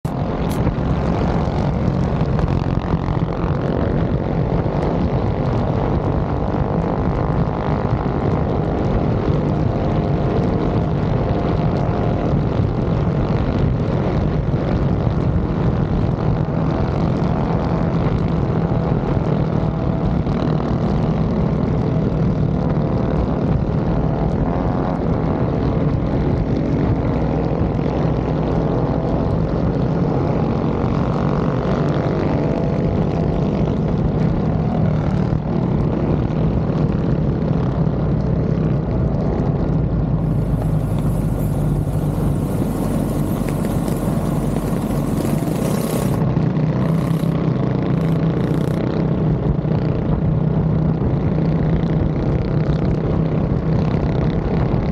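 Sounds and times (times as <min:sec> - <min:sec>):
minibike engine running: 0:40.2 - 0:48.9.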